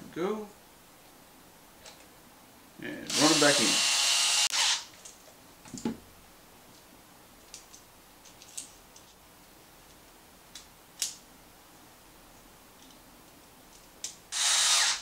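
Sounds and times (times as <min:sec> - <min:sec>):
electric screwdriver whirring: 0:03.1 - 0:04.9, 0:14.3 - 0:15.0.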